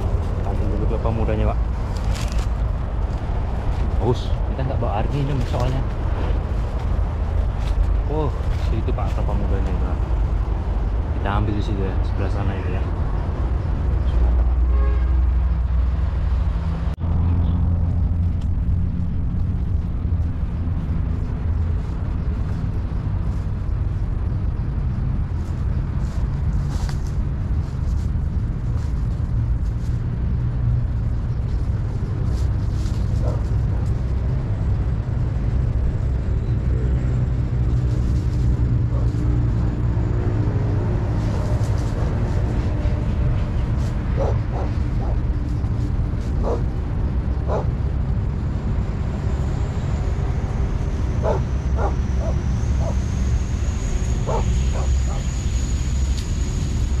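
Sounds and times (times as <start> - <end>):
steady low rumble: 0.0 - 57.0
dog barking: 44.2 - 45.2, 46.4 - 46.6, 47.5 - 47.7, 51.2 - 53.0, 54.3 - 55.3.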